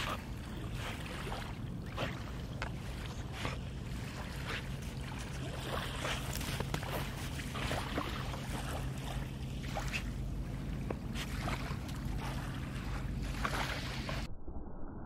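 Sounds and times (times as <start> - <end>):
dog paws scratching sand: 3.2 - 8.6.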